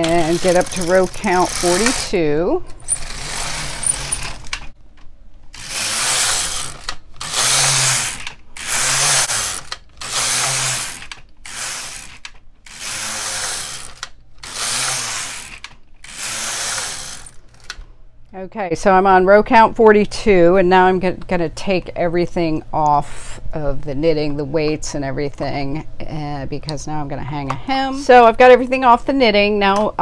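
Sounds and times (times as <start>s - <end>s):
knitting machine carriage sliding: 0.0s - 4.8s, 5.6s - 17.8s.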